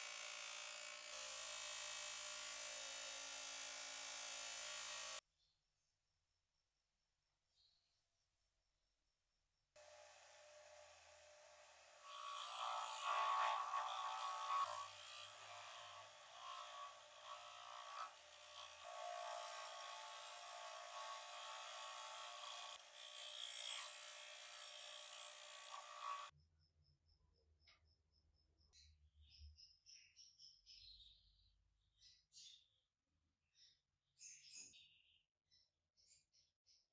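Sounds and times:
bench grinder running: 0.0s - 5.2s, 9.8s - 26.3s.

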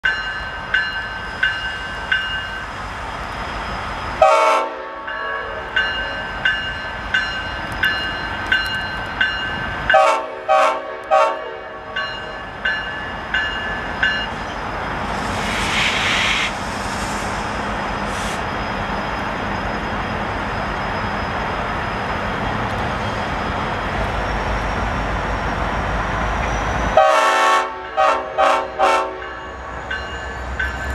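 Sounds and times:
locomotive bell ringing: 0.0s - 2.8s, 5.0s - 10.2s, 11.4s - 14.6s, 27.8s - 30.9s
locomotive air horn blasts: 4.2s - 5.7s, 9.9s - 12.0s, 27.0s - 29.3s
rushing noise: 13.8s - 27.0s.

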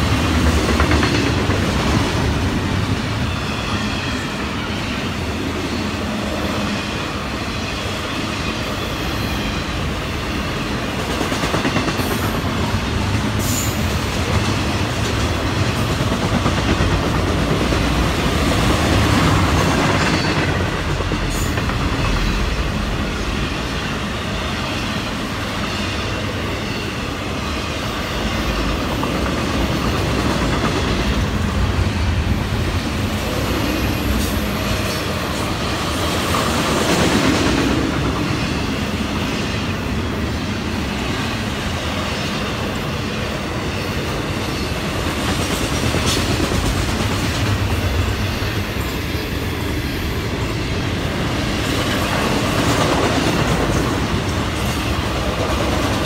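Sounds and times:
freight train wheels rumbling: 0.0s - 56.0s.

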